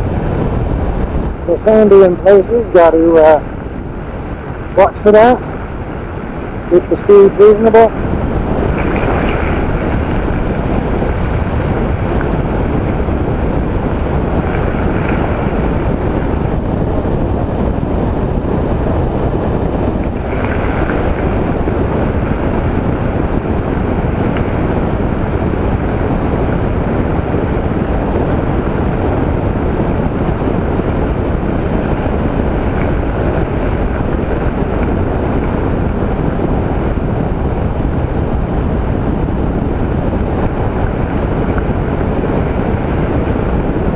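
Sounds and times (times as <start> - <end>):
motorcycle road noise: 0.0 - 43.9
wind rush on microphone: 0.0 - 43.9.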